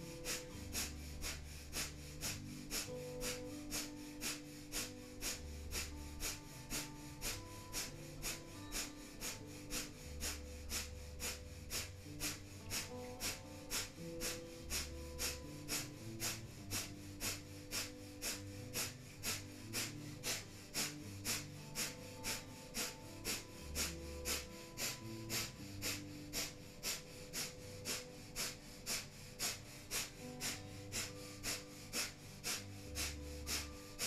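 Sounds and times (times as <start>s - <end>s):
rapid forceful exhales through nose: 0.0s - 34.0s
soft background music: 0.0s - 34.0s.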